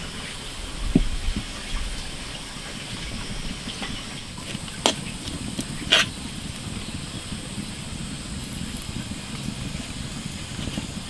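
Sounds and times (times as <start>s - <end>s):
fire hissing and rumbling: 0.0s - 11.0s.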